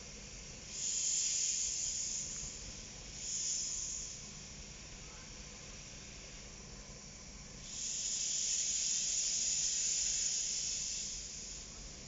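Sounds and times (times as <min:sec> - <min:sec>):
pressure release hiss: 0:00.7 - 0:02.3, 0:07.6 - 0:11.6.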